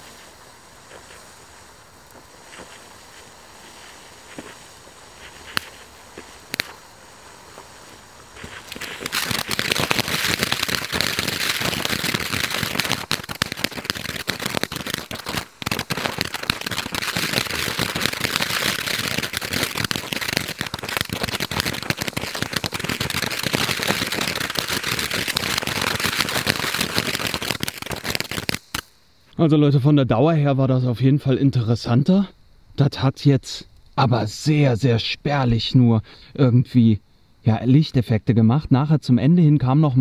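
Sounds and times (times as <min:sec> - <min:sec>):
dense crackling: 0:00.0 - 0:29.0
firework fountain hissing sparks: 0:00.0 - 0:29.0.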